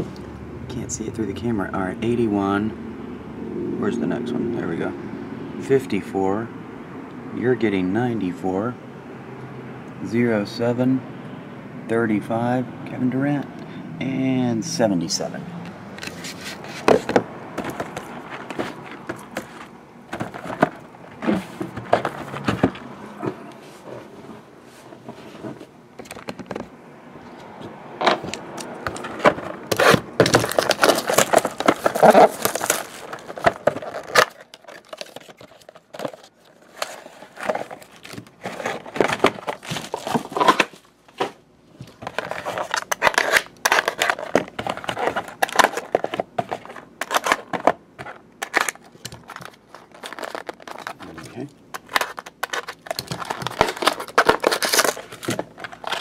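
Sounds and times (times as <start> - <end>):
cardboard packs handled and scraped: 16.0 - 25.7, 28.2 - 56.0
box cutter slitting wrapper: 28.6 - 41.3, 42.0 - 47.7, 48.4 - 56.0
plastic wrap crinkling and tearing: 29.7 - 40.9, 42.0 - 47.5, 48.4 - 56.0.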